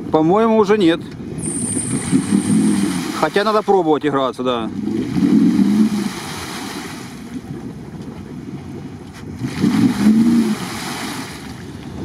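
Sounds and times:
car engine revving: 0:01.4 - 0:03.6, 0:04.7 - 0:06.5, 0:09.4 - 0:11.2.

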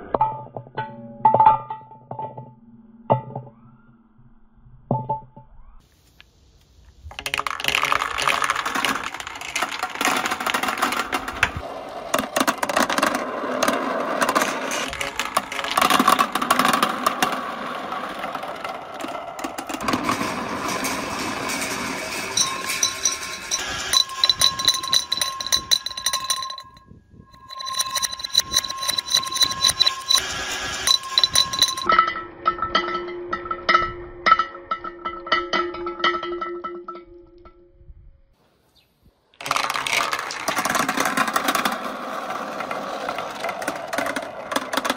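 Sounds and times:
plastic balls rolling in marble run: 0:07.0 - 0:31.9, 0:39.4 - 0:44.9
glass vase ringing: 0:20.8 - 0:37.6.

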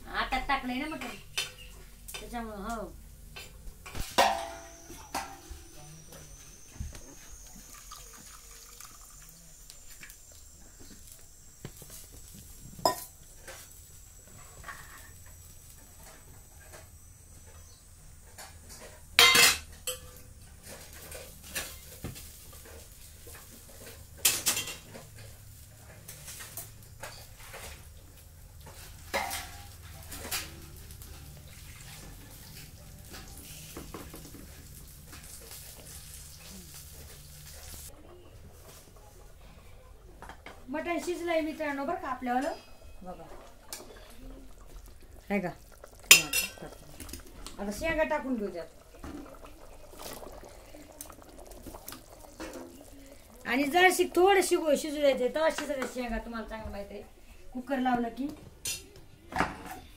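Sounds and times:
steel vessels being handled: 0:03.3 - 0:27.9, 0:28.6 - 0:39.2, 0:41.8 - 0:54.9
water pouring into steel pot: 0:04.1 - 0:14.6, 0:41.5 - 0:54.9
steel utensils clinking: 0:19.2 - 0:20.3, 0:46.0 - 0:47.0.

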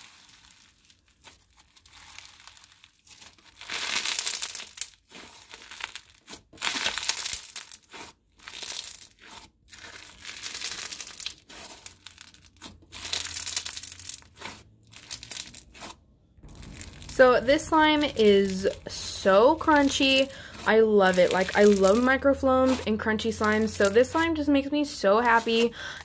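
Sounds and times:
slime crackling and popping: 0:00.0 - 0:26.0.

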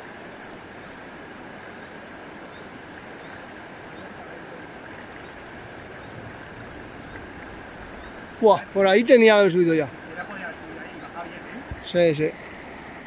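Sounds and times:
river water flowing: 0:00.0 - 0:13.0.

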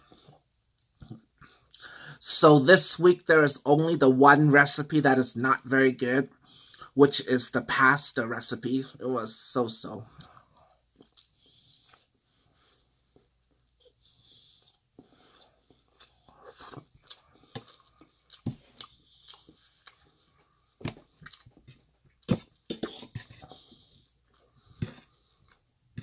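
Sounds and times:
person chewing food: 0:10.1 - 0:26.0
metal fork scraping metal bowl: 0:22.7 - 0:23.6, 0:24.8 - 0:25.2.

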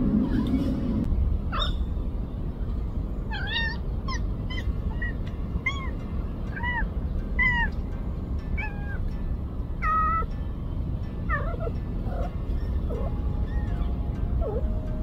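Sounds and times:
low background rumble: 0:00.0 - 0:15.0
cat mewing: 0:03.3 - 0:05.9.

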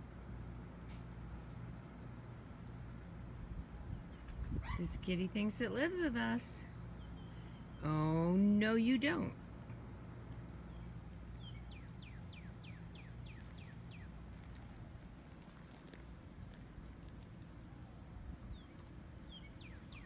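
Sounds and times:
bird singing faintly: 0:10.7 - 0:14.9, 0:17.8 - 0:20.0.

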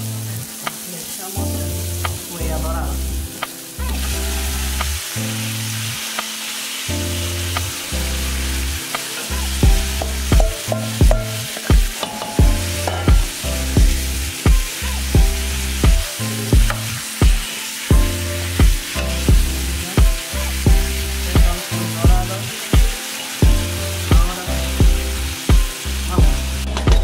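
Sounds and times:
background music with bass: 0:00.0 - 0:06.3, 0:06.9 - 0:27.0
meat sizzling in a pot: 0:00.0 - 0:27.0
regular beat: 0:09.6 - 0:27.0.

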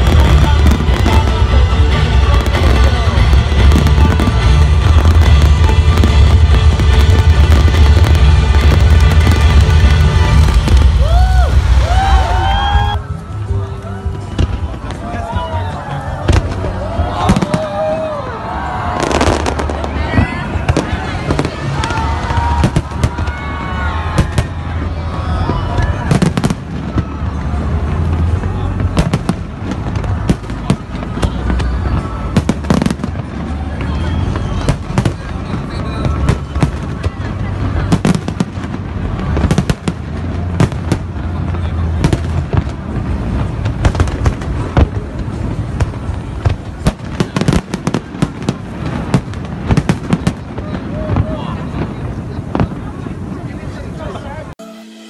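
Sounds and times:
steady low rumble: 0:00.0 - 0:13.7
firework bangs and crackles: 0:00.0 - 0:54.6.

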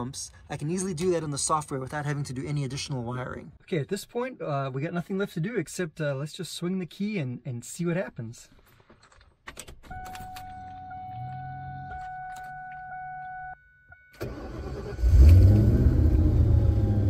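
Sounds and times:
car engine cranking and running: 0:14.2 - 0:17.0.

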